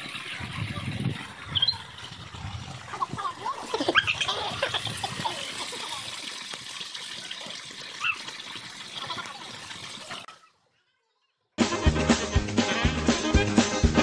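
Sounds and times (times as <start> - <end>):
spring water pouring and splashing: 0.0 - 10.6
high chirps: 1.4 - 1.9.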